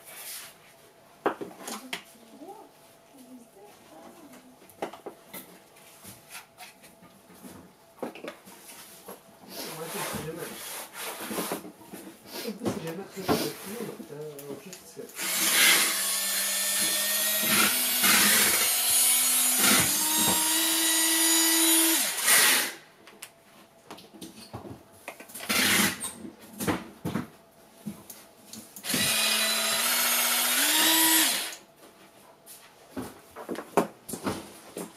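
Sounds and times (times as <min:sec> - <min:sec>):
small electric motor whirring: 0:15.2 - 0:22.8, 0:25.5 - 0:26.0, 0:28.8 - 0:31.6.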